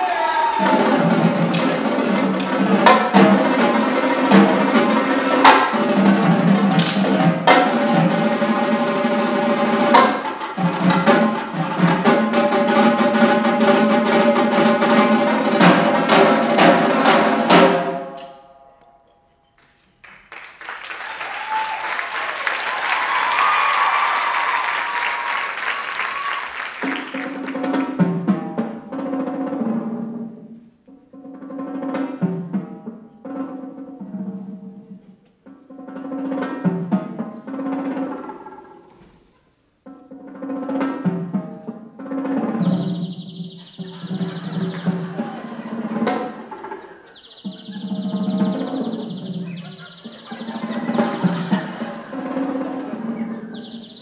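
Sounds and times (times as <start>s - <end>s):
audience cheering and shouting: 0.0s - 1.2s, 20.9s - 27.3s, 43.8s - 46.1s, 49.8s - 53.6s
marching tenor drums playing: 0.6s - 18.0s, 40.1s - 46.6s, 47.4s - 54.0s.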